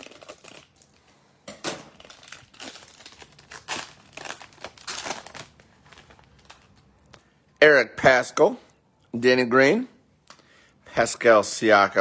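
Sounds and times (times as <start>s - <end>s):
foil wrapper tearing and crinkling: 0.0s - 0.9s, 2.0s - 6.8s.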